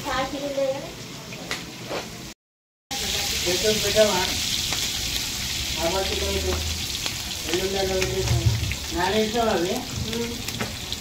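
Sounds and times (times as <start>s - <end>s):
onions sizzling in oil: 0.0s - 2.3s, 2.9s - 11.0s.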